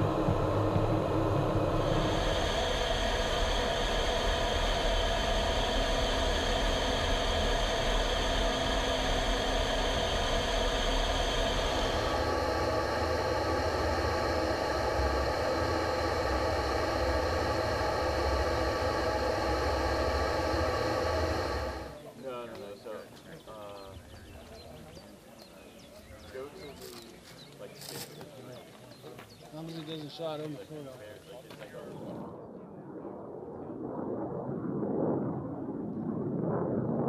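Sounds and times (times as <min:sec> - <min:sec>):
high whine: 0:00.0 - 0:22.4
jet engine and airflow hiss: 0:00.0 - 0:24.6.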